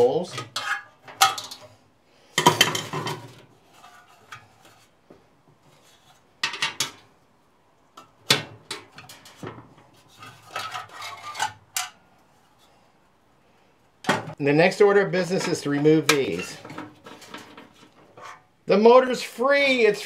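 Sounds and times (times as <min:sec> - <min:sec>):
sheet metal parts clattering: 0:00.0 - 0:01.8, 0:02.4 - 0:04.9, 0:05.8 - 0:07.1, 0:08.0 - 0:12.0, 0:15.3 - 0:18.5.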